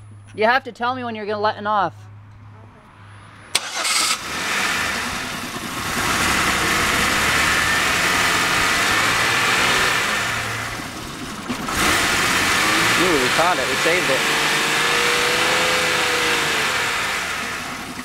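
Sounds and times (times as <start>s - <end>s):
car engine revving: 2.8s - 18.0s.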